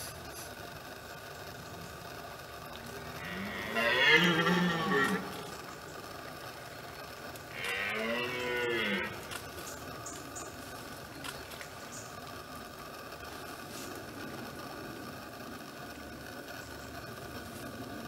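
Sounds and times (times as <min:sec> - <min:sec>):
deer stag roaring: 0:03.2 - 0:05.6, 0:07.5 - 0:09.3.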